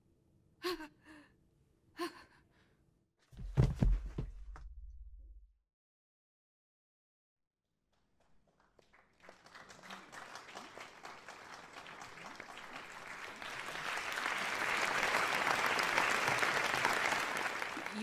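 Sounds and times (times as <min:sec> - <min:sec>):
audience applause: 0:08.4 - 0:18.0.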